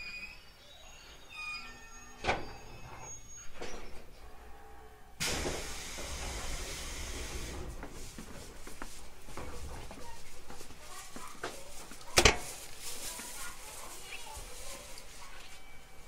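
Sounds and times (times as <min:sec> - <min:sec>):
loud hiss of compressed air: 0:05.2 - 0:08.2.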